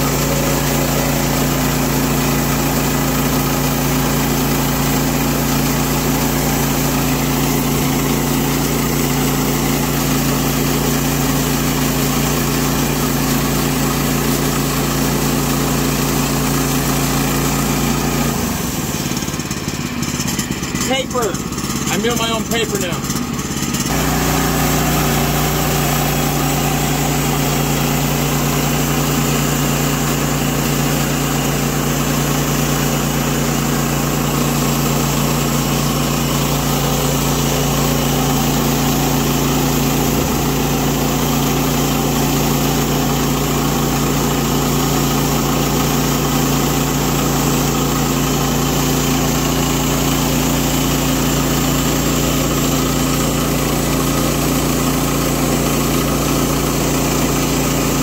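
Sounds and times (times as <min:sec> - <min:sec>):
gas engine running: 0:00.0 - 0:58.0
band blade sawing wood: 0:20.2 - 0:58.0.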